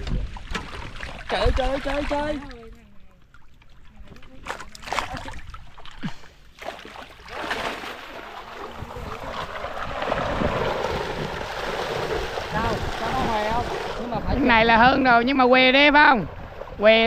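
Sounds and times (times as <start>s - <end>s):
water splashing: 0.0s - 17.0s.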